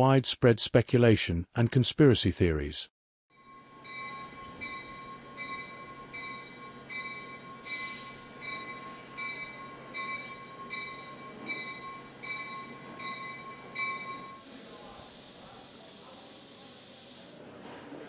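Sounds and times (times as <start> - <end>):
train bell ringing: 3.3 - 14.4
low rumble of train: 3.4 - 14.4.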